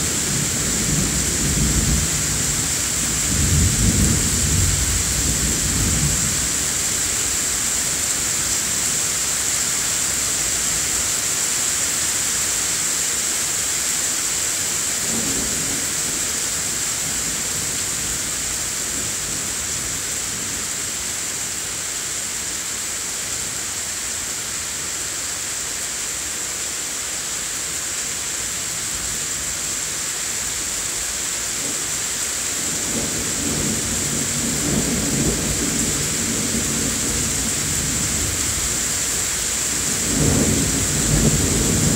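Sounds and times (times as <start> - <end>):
steady rain hissing: 0.0 - 41.9
thunder rumbling: 39.8 - 41.9.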